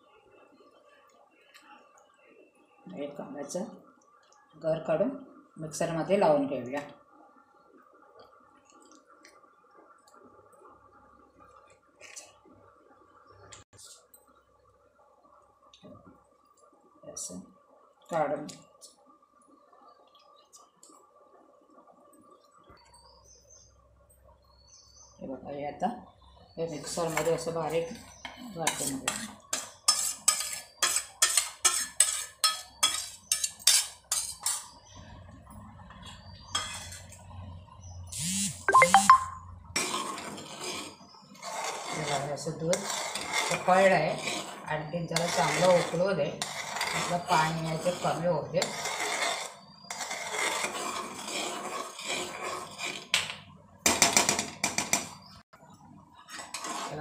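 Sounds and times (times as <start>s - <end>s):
metal ladle scraping pot: 26.8s - 34.9s, 36.0s - 37.2s, 39.8s - 53.4s, 56.2s - 57.0s
low steady hum: 34.7s - 39.8s.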